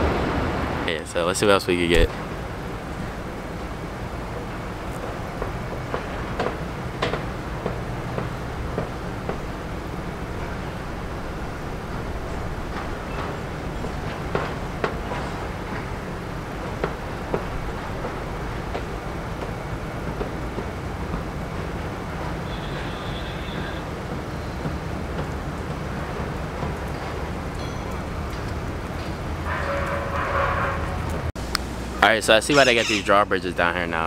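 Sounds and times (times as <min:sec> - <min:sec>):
road traffic rumble: 0:00.0 - 0:34.0.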